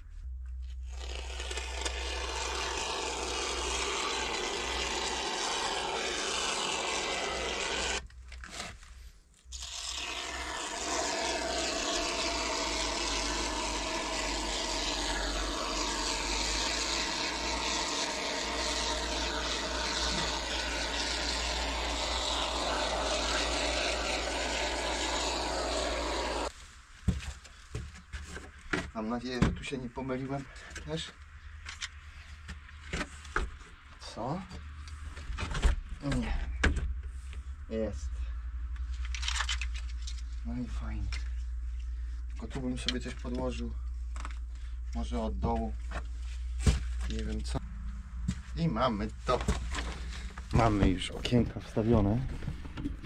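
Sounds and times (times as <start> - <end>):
continuous scraping: 0.0 - 36.4, 37.0 - 53.0
steady low hum: 8.8 - 26.5.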